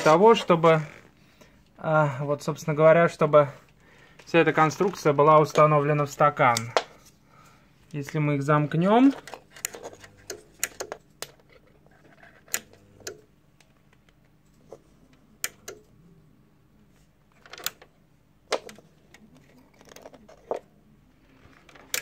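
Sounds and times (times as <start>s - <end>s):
faint low hum: 0.0s - 22.0s
clicks and light knocks: 21.7s - 22.0s.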